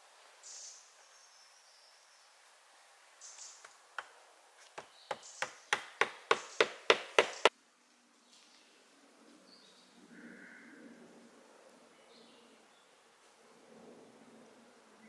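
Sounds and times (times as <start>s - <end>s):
hammering on wooden slat: 4.7s - 7.5s.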